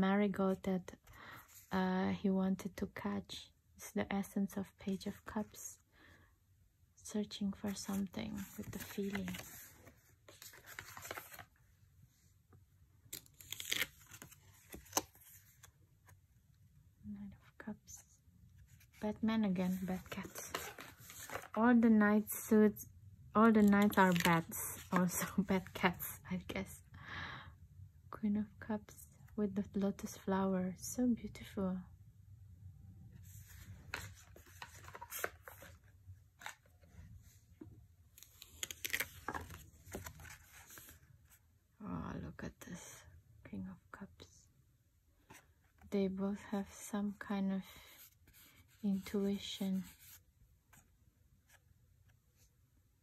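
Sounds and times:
cards rustling: 7.6 - 11.5, 13.1 - 15.7, 19.7 - 21.6, 23.6 - 25.8, 33.3 - 37.4, 38.2 - 41.0.

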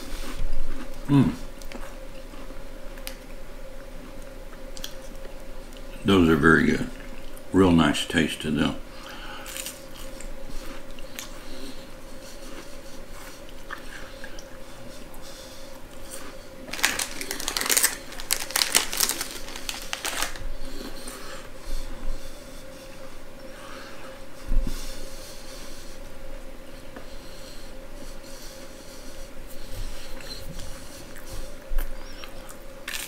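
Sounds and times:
crunching cracker: 9.4 - 10.2, 16.1 - 20.5, 32.4 - 33.0
plastic wrapper crinkling: 16.7 - 20.4.

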